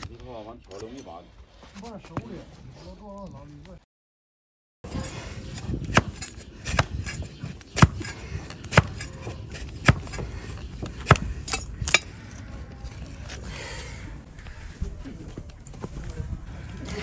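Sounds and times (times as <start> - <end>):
blade scraping hoof: 4.9 - 13.5
blade cracking hoof horn: 7.8 - 10.2.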